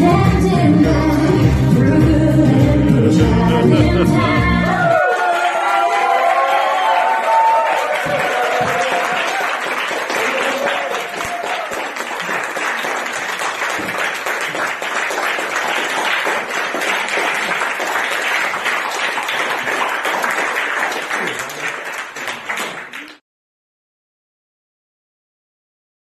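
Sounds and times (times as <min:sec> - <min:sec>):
people clapping: 0:04.7 - 0:23.2.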